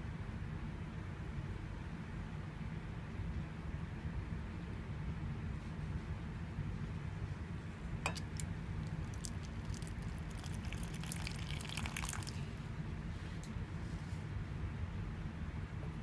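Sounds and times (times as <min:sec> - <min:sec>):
steady low hum: 0:00.0 - 0:16.0
water splashing onto paper: 0:08.1 - 0:12.4.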